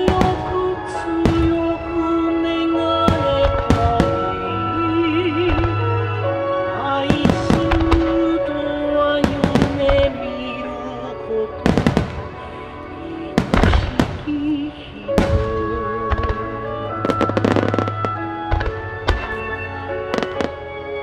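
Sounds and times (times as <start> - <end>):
music over loudspeakers: 0.0 - 21.0.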